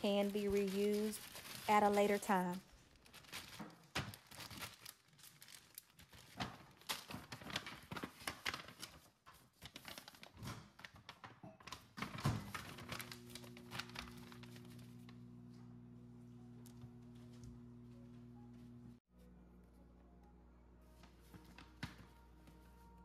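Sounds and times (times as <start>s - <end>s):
paper and plastic bags rustling: 0.0s - 15.9s, 20.9s - 23.0s
steady low hum: 13.0s - 21.4s.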